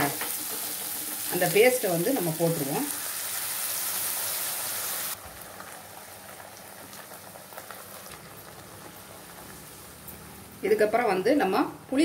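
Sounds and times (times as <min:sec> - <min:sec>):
sauce sizzling and bubbling in a pan: 0:00.0 - 0:10.6
faint crackles and pops: 0:05.1 - 0:10.2.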